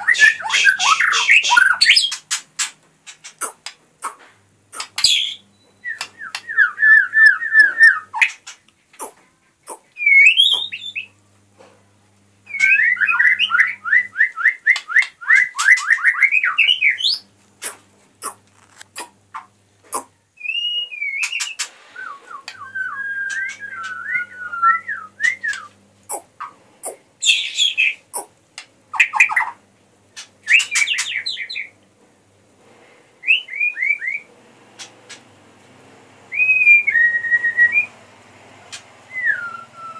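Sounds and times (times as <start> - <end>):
bird singing whistled notes: 10.0 - 11.1, 20.4 - 25.7, 36.3 - 37.9, 39.1 - 39.9.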